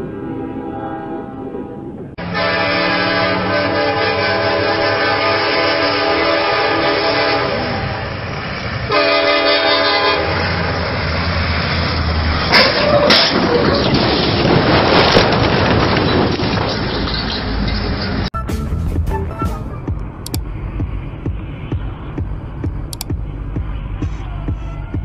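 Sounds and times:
train rumble: 0.0 - 25.0
locomotive air horn blasts: 2.2 - 8.0, 8.9 - 10.6.

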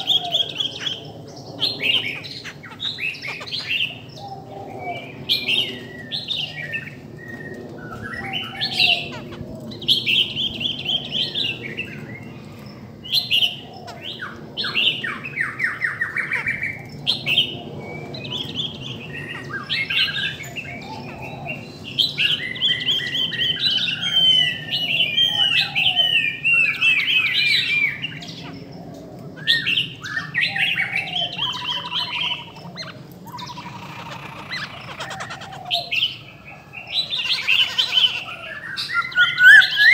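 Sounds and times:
birds singing whistled phrases: 29.4 - 39.9.

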